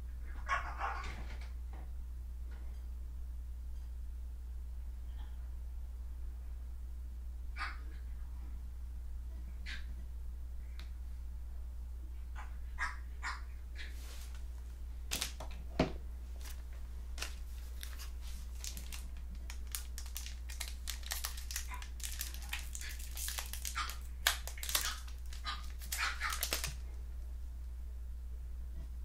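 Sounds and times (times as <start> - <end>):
low hum: 1.3 - 29.0
cards being handled: 14.1 - 15.6, 16.3 - 26.9
foil wrapper crinkling: 14.2 - 15.6, 16.3 - 27.0.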